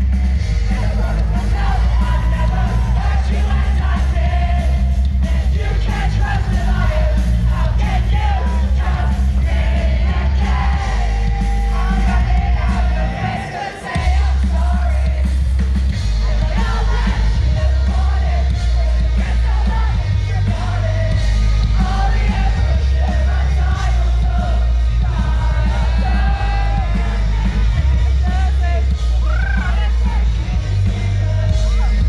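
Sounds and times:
heavy bass: 0.0 - 32.0
live rock band playing: 0.0 - 32.0
person singing and shouting: 25.6 - 32.0.

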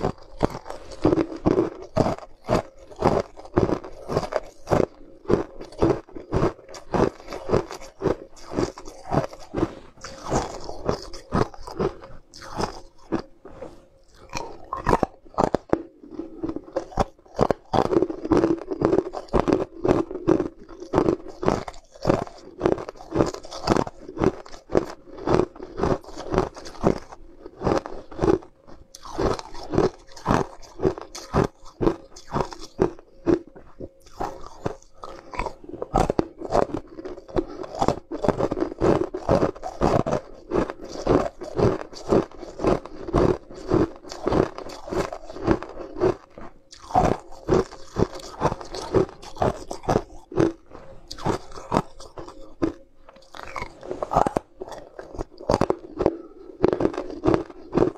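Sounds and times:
chewing: 0.0 - 57.9
ice crunching: 46.8 - 57.9.

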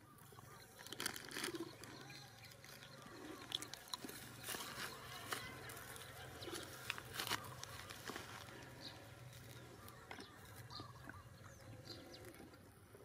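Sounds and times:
soft animal sounds: 0.0 - 13.0
rustling dry grass: 0.6 - 11.0
plastic wrapper crinkling: 0.8 - 2.9, 3.5 - 8.7.

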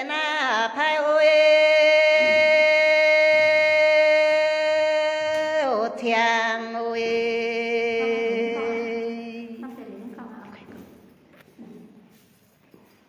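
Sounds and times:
person singing long held notes: 0.0 - 9.6.

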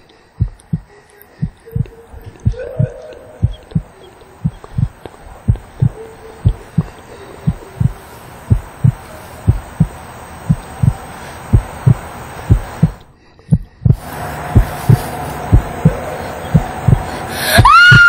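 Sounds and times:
heartbeat thuds: 0.0 - 18.0
faint hiss: 3.2 - 13.2, 13.9 - 17.7.

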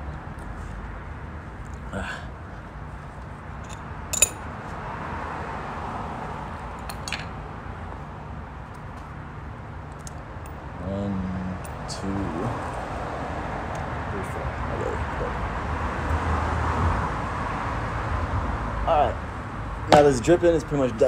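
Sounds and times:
metal parts clicking on concrete: 3.6 - 4.4, 6.8 - 7.3.

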